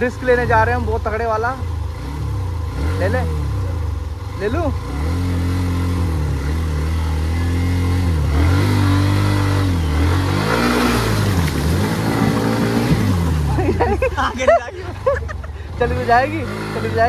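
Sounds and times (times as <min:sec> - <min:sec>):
motorcycle engine revving: 0:00.0 - 0:17.0
water splashing: 0:10.3 - 0:15.3.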